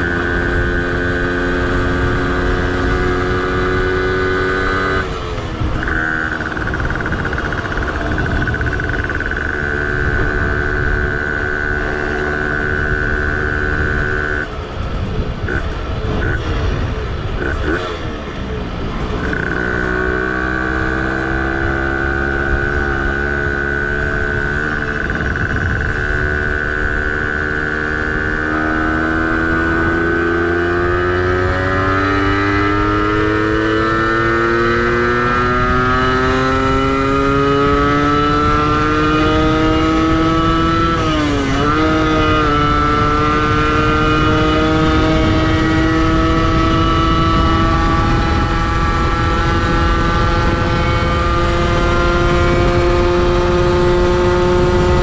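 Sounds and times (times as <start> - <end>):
two-stroke moped engine revving: 0.0 - 14.6, 15.3 - 55.0.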